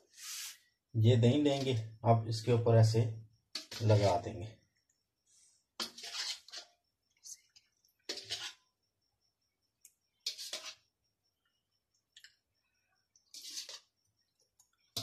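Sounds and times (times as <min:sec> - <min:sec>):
spoon scooping thick yogurt: 0:05.8 - 0:06.8, 0:07.4 - 0:08.6, 0:13.2 - 0:15.0.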